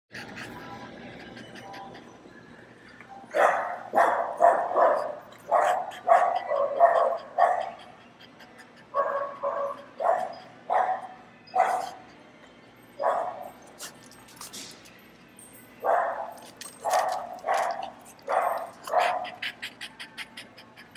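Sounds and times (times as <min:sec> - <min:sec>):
dog barking: 0:03.3 - 0:07.8, 0:08.9 - 0:12.0, 0:13.0 - 0:13.5, 0:15.8 - 0:19.5.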